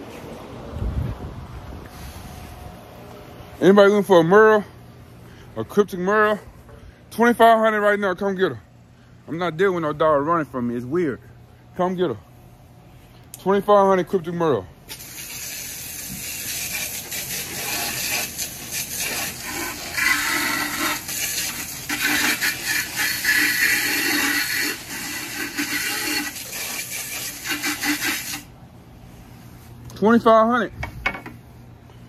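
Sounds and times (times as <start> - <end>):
water spraying: 14.9 - 28.5.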